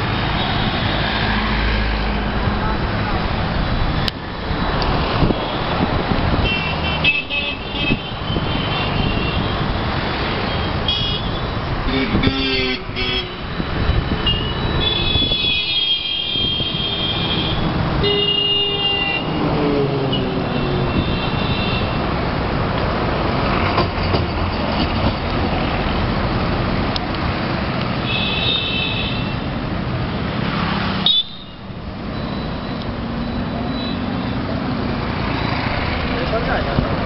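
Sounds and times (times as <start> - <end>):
road traffic din: 0.0 - 37.0
vehicle horns honking: 6.4 - 9.7, 10.4 - 19.4, 20.1 - 22.1, 28.0 - 29.5, 31.0 - 31.6.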